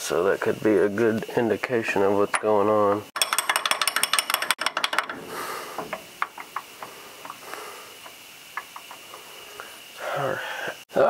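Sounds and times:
rapid metallic clicks: 2.3 - 9.3.

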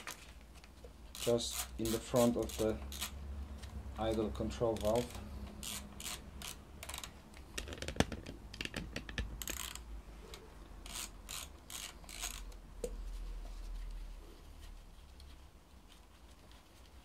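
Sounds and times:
ratchet wrench clicking: 1.1 - 3.2, 4.0 - 7.2, 9.4 - 9.8, 10.8 - 12.6.

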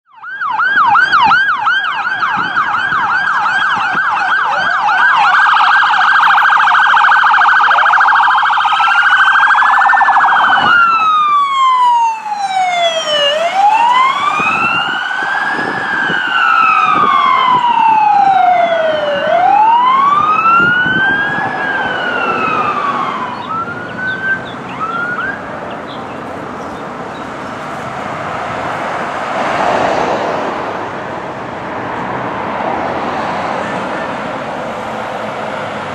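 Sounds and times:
road and engine noise: 0.0 - 35.9
siren chirps: 0.1 - 26.3
emergency sirens yelping and wailing: 0.1 - 35.9.

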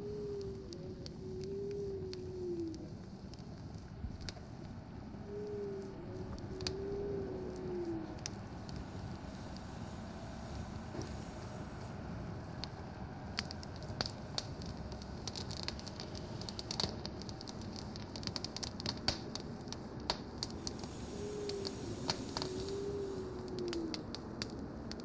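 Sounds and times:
low steady rumble: 0.0 - 25.0
wood fire crackling and popping: 0.0 - 25.0.

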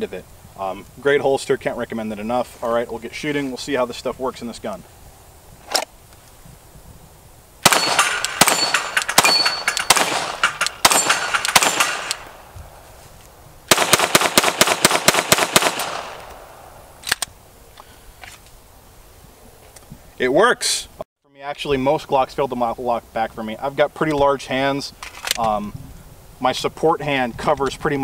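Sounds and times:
rapid pistol shots: 7.6 - 12.4, 13.7 - 16.6
sharp pistol click: 7.6 - 12.4, 13.7 - 17.3.

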